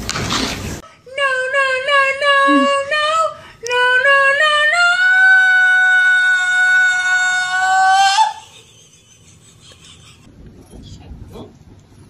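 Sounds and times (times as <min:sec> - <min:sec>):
person singing high notes: 0:01.2 - 0:02.9.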